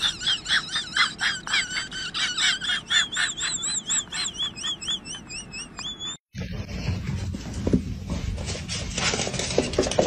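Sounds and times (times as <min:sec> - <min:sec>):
high-pitched chirping: 0:00.0 - 0:06.3.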